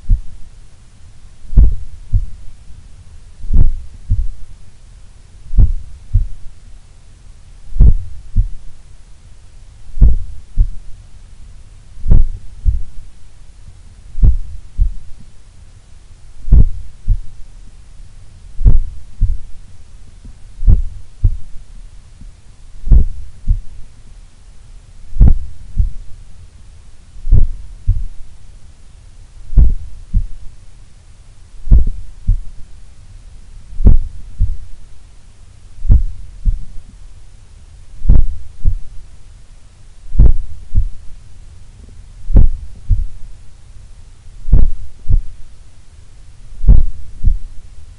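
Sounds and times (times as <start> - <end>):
heartbeat through stethoscope: 0.0 - 0.4, 1.5 - 2.4, 3.4 - 4.5, 5.5 - 6.5, 7.7 - 8.7, 9.9 - 10.8, 12.0 - 13.1, 14.2 - 15.3, 16.4 - 17.4, 18.6 - 19.6, 20.6 - 21.6, 22.8 - 23.8, 25.1 - 26.1, 27.2 - 28.2, 29.5 - 30.5, 31.6 - 32.6, 33.8 - 34.8, 35.8 - 36.9, 38.0 - 39.0, 40.1 - 41.1, 42.3 - 43.3, 44.4 - 45.4, 46.6 - 47.6.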